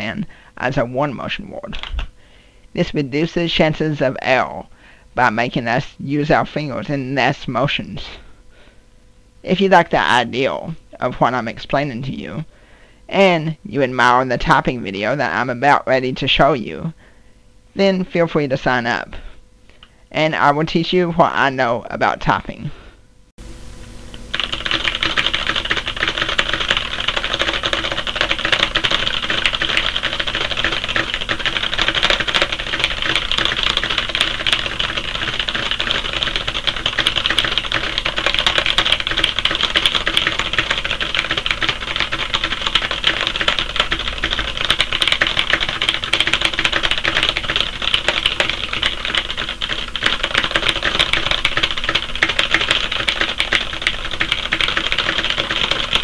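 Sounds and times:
fast typing on computer keyboard: 24.3s - 56.0s.

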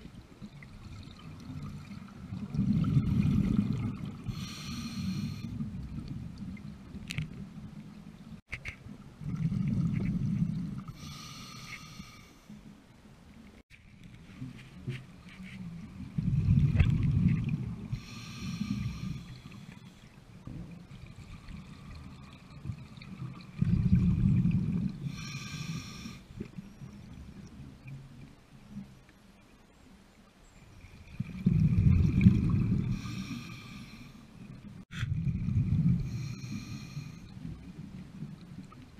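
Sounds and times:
exhaled bubbles rumbling: 0.0s - 4.4s, 9.0s - 11.0s, 15.8s - 18.1s, 20.4s - 28.2s, 31.0s - 33.2s, 34.4s - 36.6s
regulator hiss on inhale: 4.3s - 5.6s, 10.9s - 12.6s, 17.9s - 20.1s, 25.1s - 26.3s, 32.9s - 34.4s, 36.0s - 37.3s.

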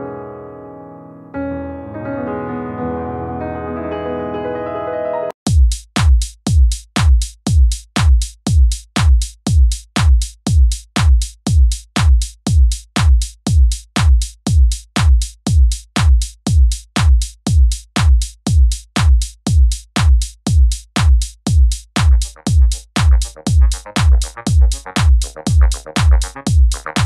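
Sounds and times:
drum machine kick drum beat: 5.4s - 27.0s.

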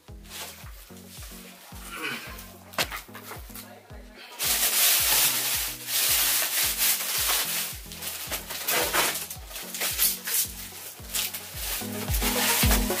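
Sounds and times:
background music with a beat: 0.0s - 13.0s
packing material rustling: 4.4s - 13.0s.

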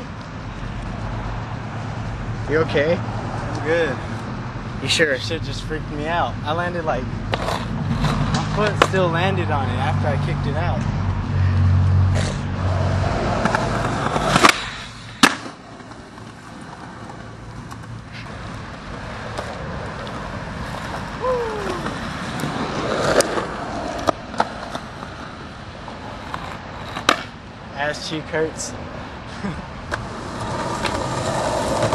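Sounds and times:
skateboard wheels rolling on concrete: 0.0s - 31.9s
skateboard clacking on ground: 7.3s - 9.0s, 13.3s - 27.4s, 29.8s - 31.9s.

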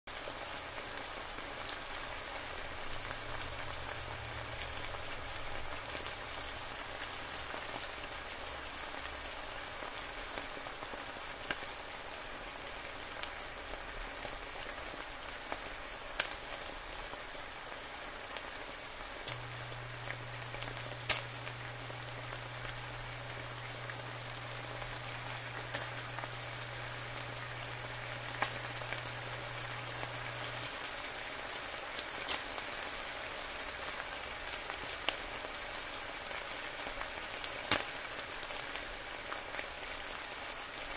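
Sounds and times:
sauce sizzling in a pan: 0.1s - 40.9s
sharp pops and spits: 32.2s - 32.5s.

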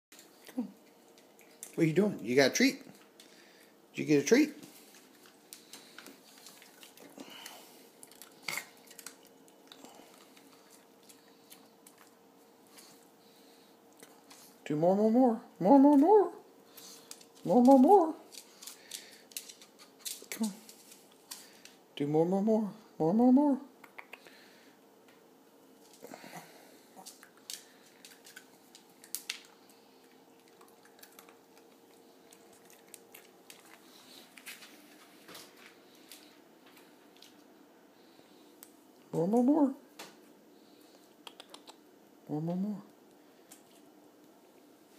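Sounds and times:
faint steady hum: 0.1s - 44.9s
puppy chewing: 0.2s - 2.0s, 4.6s - 14.6s, 16.7s - 21.8s, 25.7s - 37.6s.

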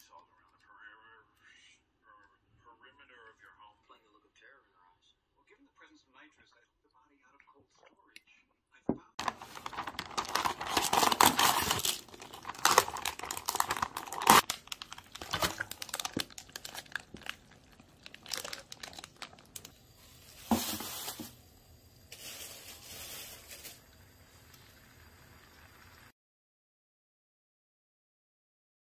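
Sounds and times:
cling film crinkling and tearing: 9.2s - 21.4s, 22.1s - 24.6s.

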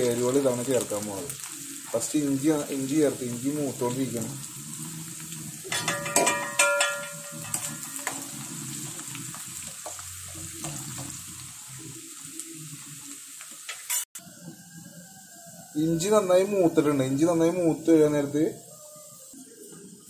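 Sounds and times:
frying sizzle in a pan: 0.0s - 20.0s
spoon clinking on metal pan: 5.7s - 8.2s.

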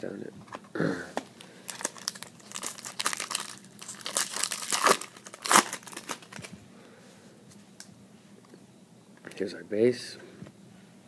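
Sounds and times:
foil wrapper crinkling: 1.4s - 6.5s.

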